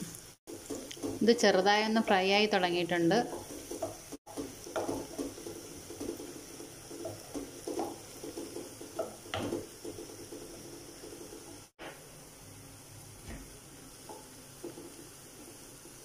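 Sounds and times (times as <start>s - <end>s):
onions sizzling in oil: 0.0s - 16.0s
wooden spatula scraping pot: 0.5s - 2.2s, 2.9s - 11.7s.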